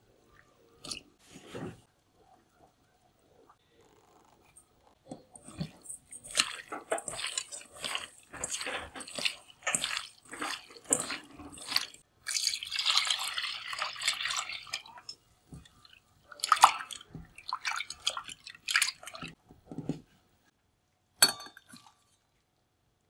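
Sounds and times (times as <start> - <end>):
hands squishing squid in bowl: 5.0 - 19.4
water sloshing and splashing: 5.0 - 19.9
water running into bowl: 5.3 - 19.4
splash through strainer: 5.4 - 15.7, 16.3 - 19.4.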